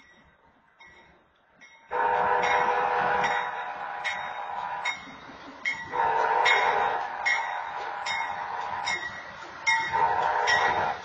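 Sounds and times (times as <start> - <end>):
crossing bell striking: 0.8 - 11.0
locomotive air horn blast: 1.9 - 4.0, 5.9 - 7.2, 9.9 - 11.0.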